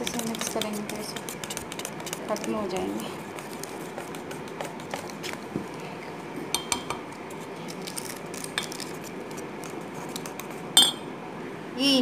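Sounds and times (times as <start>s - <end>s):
whisk clinking against bowl: 0.0s - 5.2s, 6.5s - 7.0s, 10.2s - 11.0s.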